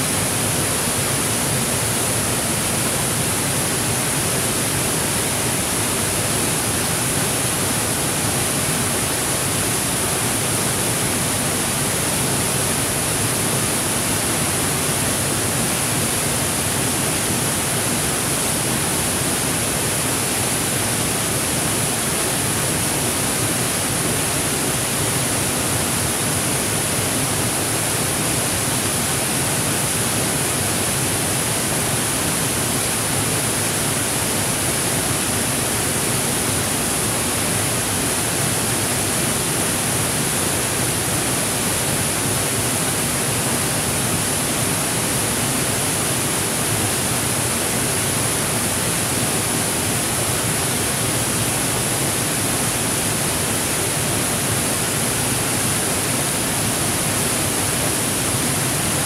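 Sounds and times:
waterfall rushing over rocks: 0.0s - 59.0s.

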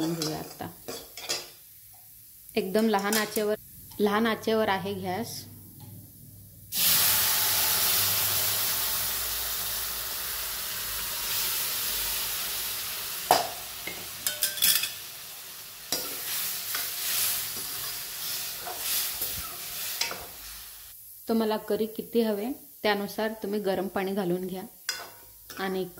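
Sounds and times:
liquid sizzling in hot fat: 6.7s - 23.1s.

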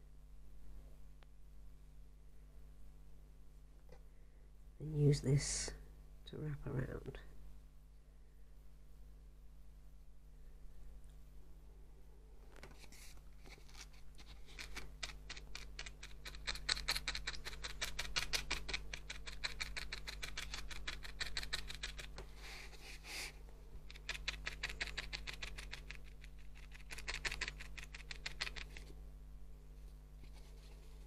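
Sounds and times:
felting needle jabbing wool: 12.8s - 28.9s.

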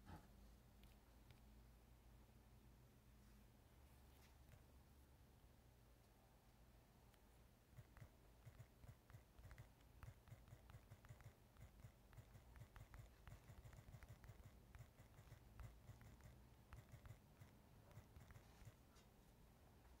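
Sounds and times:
faint low hum: 0.0s - 20.0s
tapping on touchscreen keyboard: 7.8s - 18.8s.

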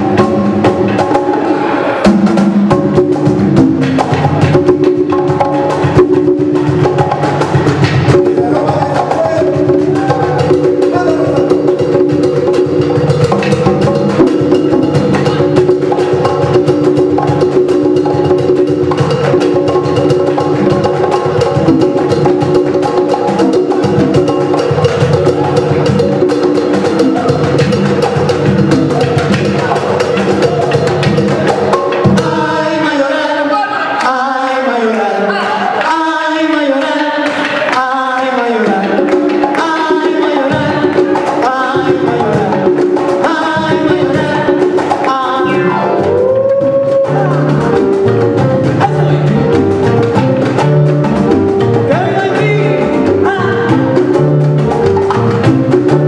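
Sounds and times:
hand drums rhythm: 0.0s - 33.1s, 35.7s - 56.0s
people singing: 28.9s - 47.8s
guitar and keyboard chords: 45.5s - 56.0s.

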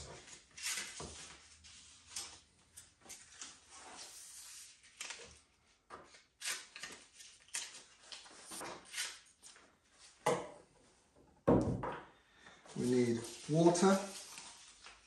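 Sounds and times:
paper rustling: 0.0s - 9.6s, 12.8s - 15.0s.

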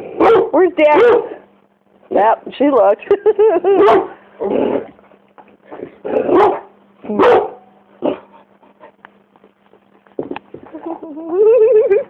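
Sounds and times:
dog barking: 0.2s - 1.4s, 3.8s - 4.2s, 6.2s - 8.2s.

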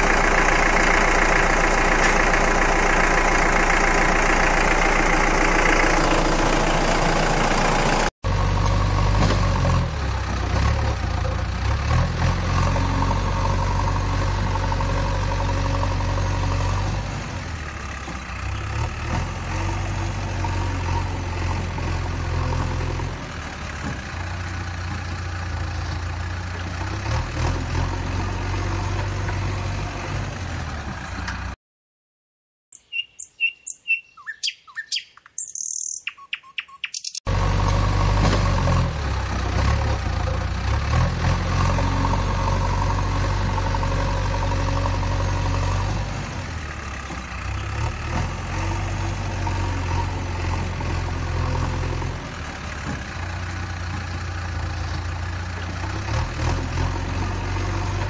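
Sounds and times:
low steady engine: 0.0s - 31.6s, 37.3s - 58.0s
birds chirping: 32.7s - 37.2s.

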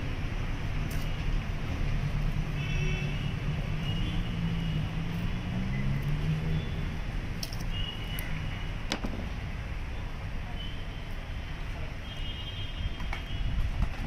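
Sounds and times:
low traffic rumble: 0.0s - 14.0s
vehicle engine passing by: 3.3s - 7.4s.

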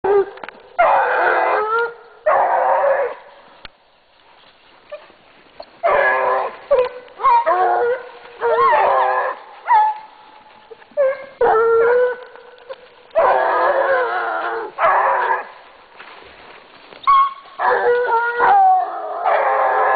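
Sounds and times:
hounds baying: 5.8s - 15.6s, 17.0s - 19.9s.

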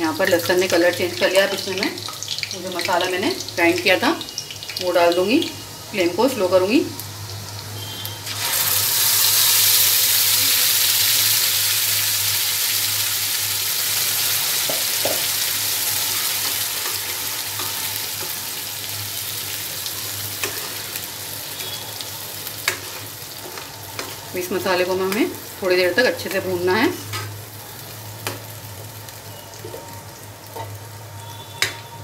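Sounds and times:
paste sizzling in hot oil: 7.4s - 32.0s.

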